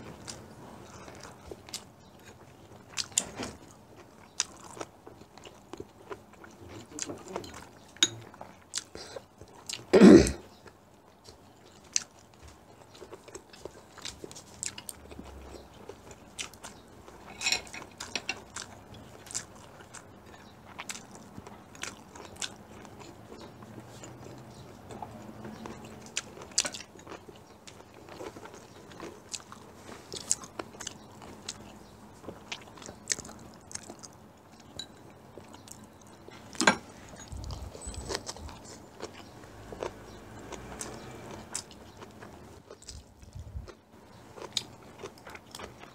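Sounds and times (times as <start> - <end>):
people chewing food: 0.0 - 45.9.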